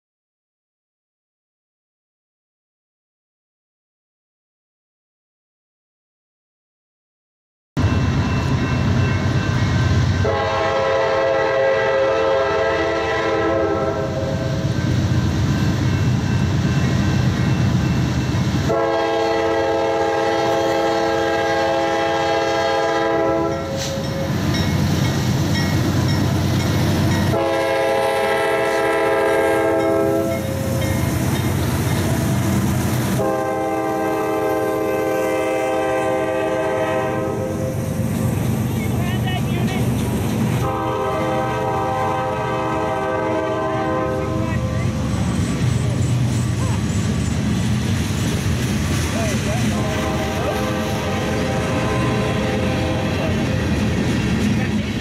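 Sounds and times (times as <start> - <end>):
locomotive air horn blasts: 10.2 - 14.6, 18.6 - 24.4, 27.2 - 30.9, 33.1 - 37.8, 40.6 - 44.7, 49.7 - 53.5.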